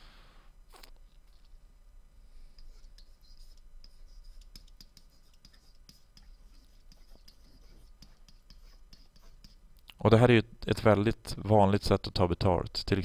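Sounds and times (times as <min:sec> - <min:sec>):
steady low hum: 0:00.0 - 0:13.0
stylus tapping and scratching tablet: 0:02.5 - 0:09.8.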